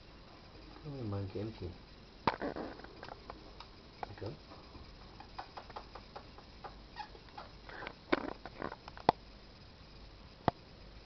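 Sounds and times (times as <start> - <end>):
small clicks and taps: 5.2 - 6.8.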